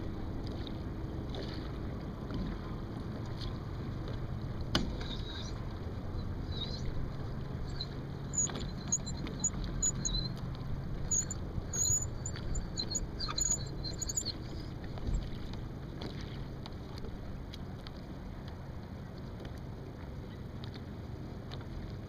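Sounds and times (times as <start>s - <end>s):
water slapping against hull: 0.0s - 22.0s
short high squeaks: 5.0s - 7.0s, 7.6s - 10.4s, 11.0s - 14.8s.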